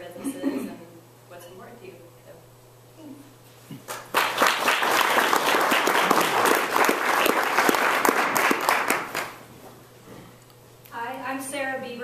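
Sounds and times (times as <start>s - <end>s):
audience applauding: 3.9s - 9.4s.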